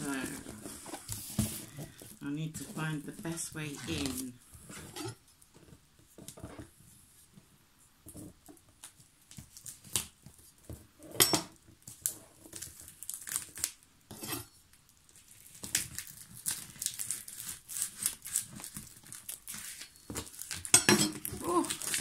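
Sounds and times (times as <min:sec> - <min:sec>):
tape crinkling and tearing: 0:11.8 - 0:13.8, 0:14.8 - 0:22.0.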